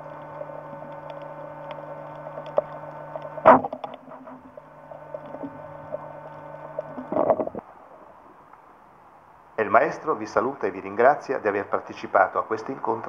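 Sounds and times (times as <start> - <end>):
faint clicks: 0.0 - 4.0
steady electrical hum: 0.0 - 13.0.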